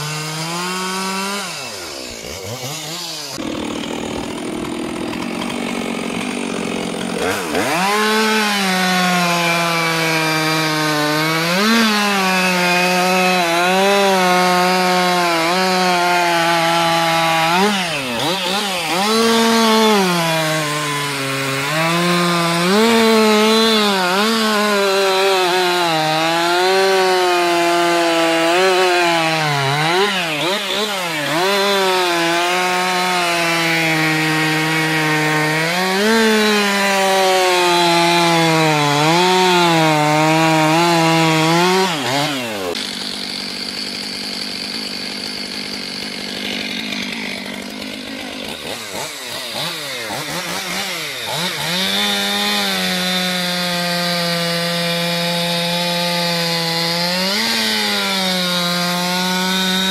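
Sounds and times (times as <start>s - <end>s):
chainsaw cutting logs: 0.0s - 59.9s.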